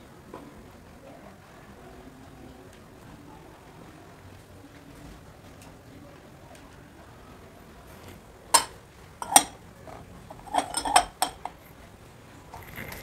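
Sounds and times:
glass and porcelain clinking: 0:08.6 - 0:11.8, 0:12.5 - 0:13.0.

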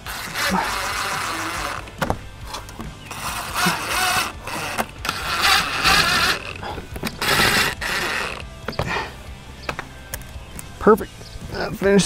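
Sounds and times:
impact driver driving screws: 0:00.0 - 0:08.5.

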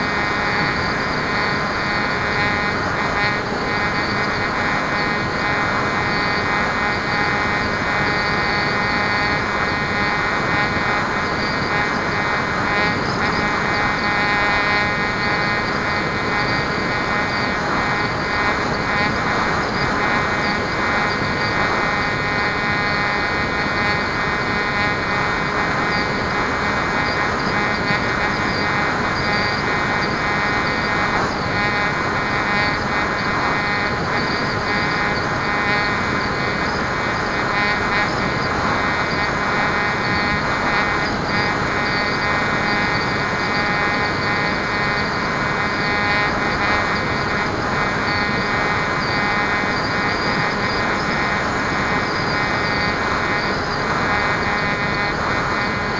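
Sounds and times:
electric motor and propeller whine: 0:00.0 - 0:55.9.

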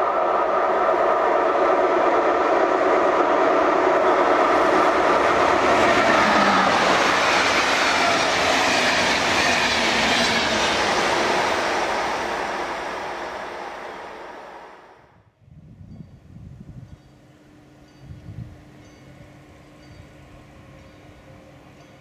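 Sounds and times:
train wheels rolling on rail: 0:00.0 - 0:15.0
locomotive tonal hum: 0:00.0 - 0:15.1, 0:15.9 - 0:22.0.

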